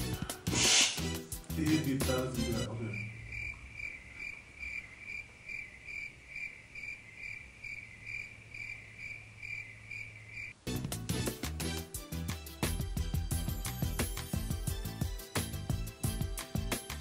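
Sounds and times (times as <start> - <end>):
cricket chirping: 2.7 - 10.6.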